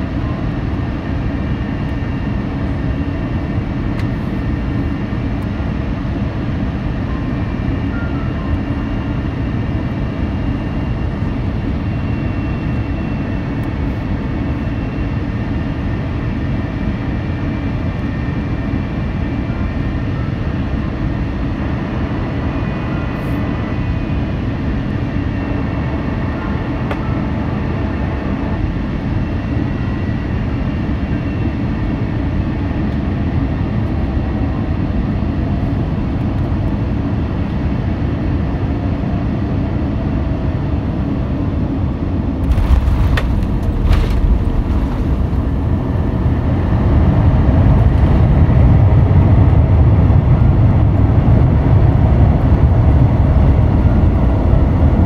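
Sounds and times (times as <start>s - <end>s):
faint engine whine: 0.0s - 55.0s
jet engines rumbling: 40.7s - 55.0s
aircraft touching down: 42.3s - 50.0s
rush of airflow: 42.4s - 48.2s.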